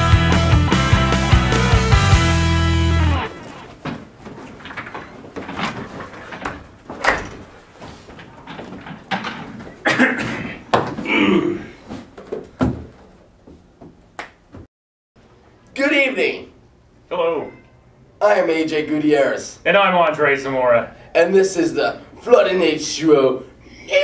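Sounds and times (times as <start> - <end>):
door opening or closing: 3.2 - 11.1
knocks and clicks of handling: 3.4 - 9.8.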